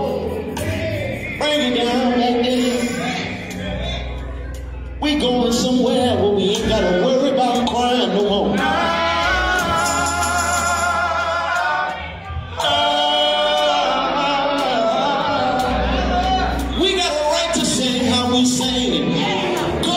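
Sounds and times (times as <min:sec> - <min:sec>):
male vocal group singing in harmony: 0:00.0 - 0:04.1, 0:05.0 - 0:19.9
bass guitar: 0:00.0 - 0:19.9.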